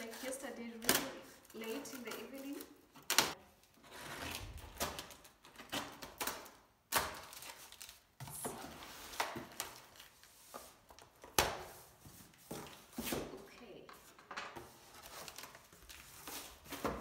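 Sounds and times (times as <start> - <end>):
packing tape cut and pulled: 0.0 - 11.7.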